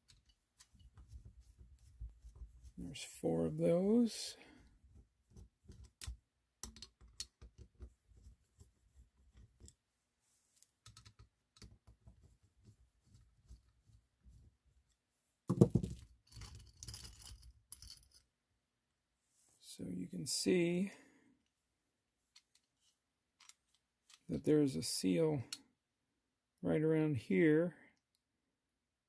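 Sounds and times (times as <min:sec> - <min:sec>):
metal parts clattering: 0:16.2 - 0:18.2.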